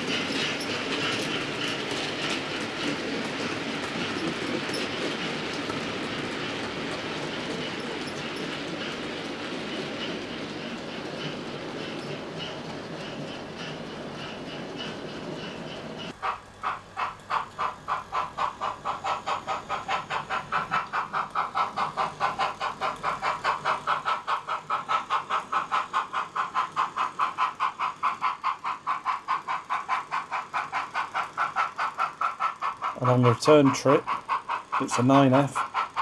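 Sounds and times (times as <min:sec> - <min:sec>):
model steam locomotive chuffs: 0:00.0 - 0:36.0.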